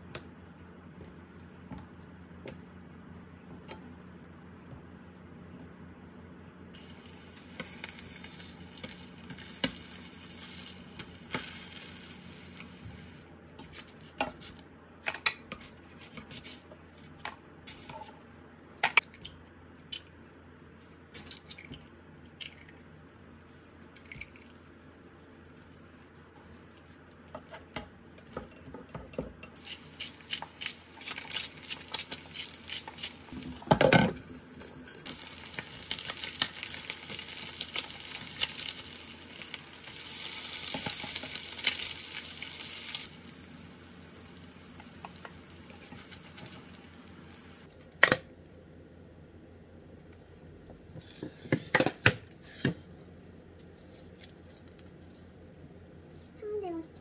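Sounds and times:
food sizzling in a frying pan: 0:06.8 - 0:13.3, 0:29.6 - 0:47.7.

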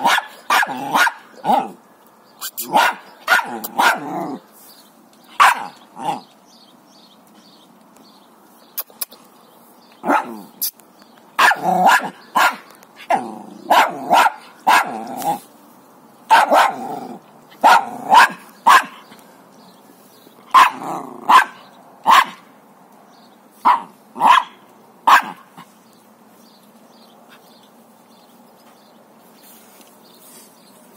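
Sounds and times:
dog barking: 0:00.0 - 0:01.8, 0:02.6 - 0:04.2, 0:05.4 - 0:05.8, 0:10.0 - 0:10.4, 0:11.4 - 0:15.1, 0:16.3 - 0:16.9, 0:17.6 - 0:19.0, 0:20.5 - 0:22.5, 0:23.6 - 0:25.6.

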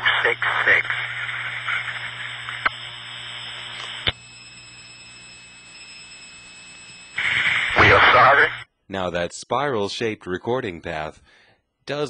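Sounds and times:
telephone line hiss and hum: 0:00.0 - 0:08.6.

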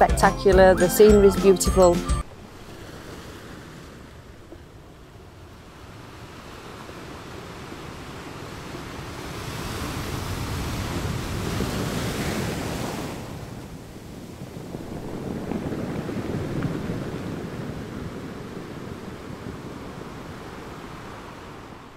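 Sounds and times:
wind buffeting microphone: 0:03.6 - 0:21.9
surf washing onto beach: 0:05.7 - 0:21.9.

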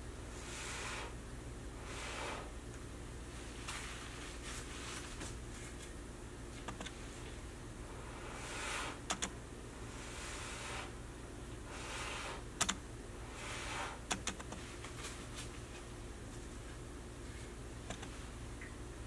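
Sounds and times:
soft puffs of breath: 0:00.3 - 0:01.2, 0:01.8 - 0:02.6, 0:07.9 - 0:09.0, 0:09.8 - 0:11.0, 0:11.6 - 0:12.5, 0:13.2 - 0:14.0.

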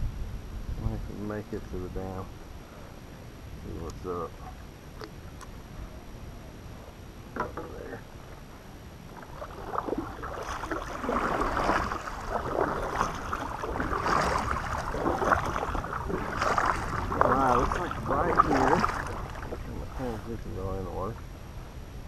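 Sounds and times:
paddle strokes splashing in water: 0:09.1 - 0:20.4.

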